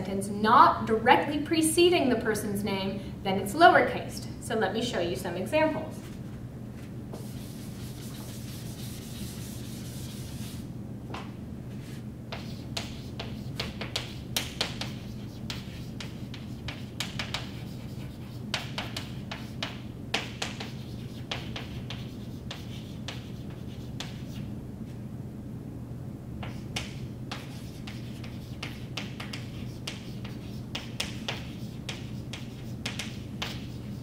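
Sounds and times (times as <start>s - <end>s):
chalk writing on blackboard: 7.2s - 10.6s, 12.3s - 24.5s, 26.4s - 34.0s
eraser wiping chalkboard: 7.2s - 10.7s, 11.8s - 24.5s, 26.4s - 34.0s.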